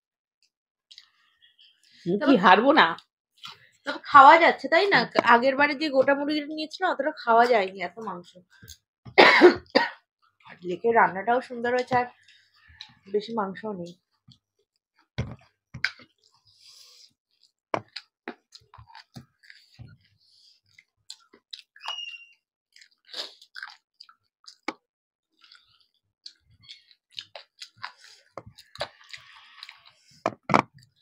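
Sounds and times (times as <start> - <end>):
wet chewing and lip smacks: 0.9 - 1.9, 15.8 - 24.8, 25.4 - 30.2.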